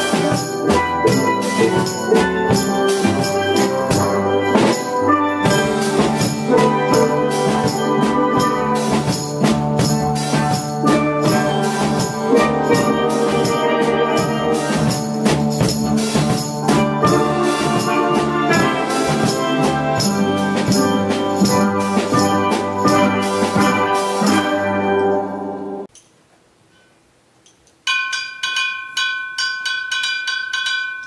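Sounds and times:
tambourine: 0:00.0 - 0:24.6
drum kit beat: 0:00.0 - 0:25.6
steel pan ensemble playing: 0:00.0 - 0:25.9.

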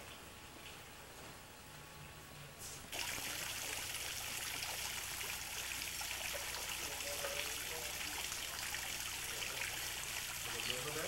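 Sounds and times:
running water rushing: 0:02.9 - 0:11.0.

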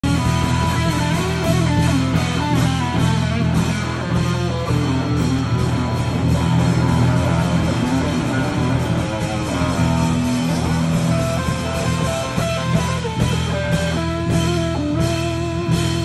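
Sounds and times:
drum kit beat: 0:00.0 - 0:16.0
surf rock electric guitar: 0:00.0 - 0:16.0.

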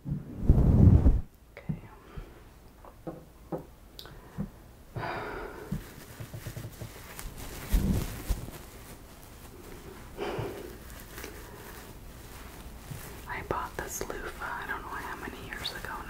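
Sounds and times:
short rustle: 0:05.6 - 0:16.0
knitted fabric scrunching: 0:05.7 - 0:16.0
hairbrush rubbing microphone: 0:09.5 - 0:16.0.

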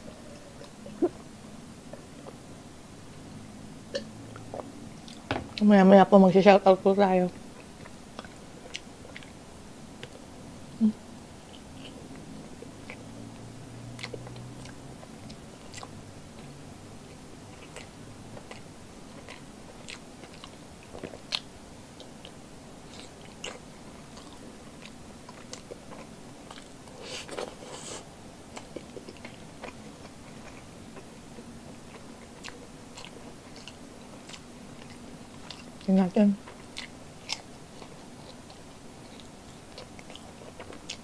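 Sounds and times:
person chewing: 0:07.6 - 0:09.4, 0:13.9 - 0:41.0.

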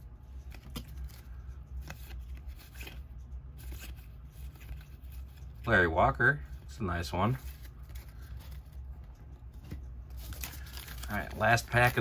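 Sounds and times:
trading cards flicking and sliding: 0:00.3 - 0:05.5.

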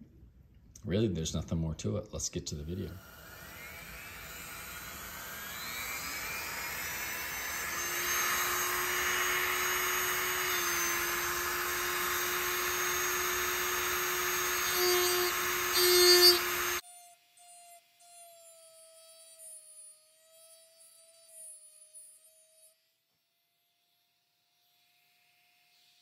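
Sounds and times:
rotary tool whining: 0:02.7 - 0:22.7.

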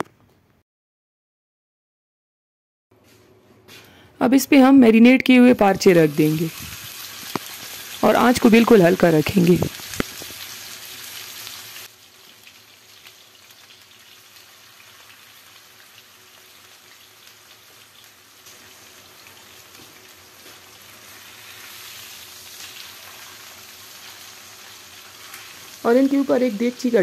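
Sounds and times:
steaks sizzling in oil: 0:06.0 - 0:27.0.

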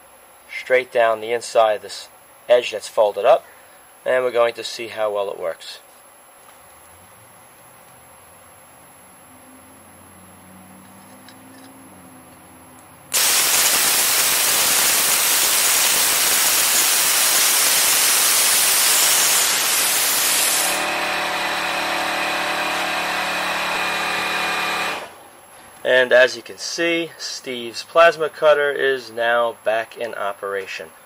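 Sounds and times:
steady hum: 0:11.8 - 0:28.4
plasma cutter hissing: 0:13.1 - 0:25.2.

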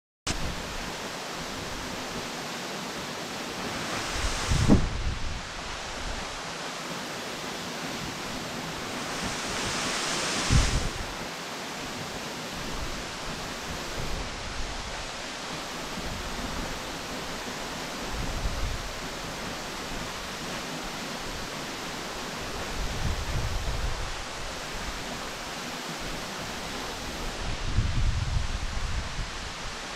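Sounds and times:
waterfall rushing: 0:00.3 - 0:27.6
wind rumbling on microphone: 0:03.6 - 0:06.4, 0:08.1 - 0:11.2, 0:18.0 - 0:20.2, 0:22.5 - 0:25.2, 0:26.8 - 0:29.9.

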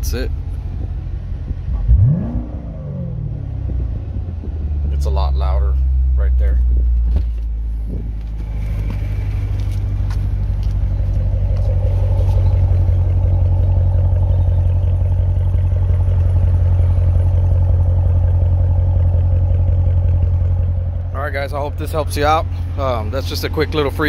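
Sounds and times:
loud car engine idling: 0:00.0 - 0:24.0.

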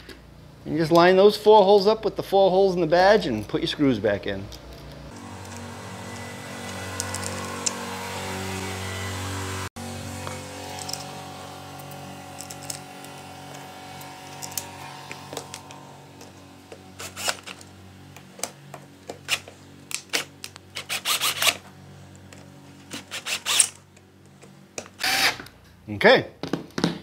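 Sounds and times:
cordless drill driving screws: 0:17.0 - 0:17.7, 0:20.1 - 0:21.6, 0:22.9 - 0:23.8, 0:25.0 - 0:25.5.

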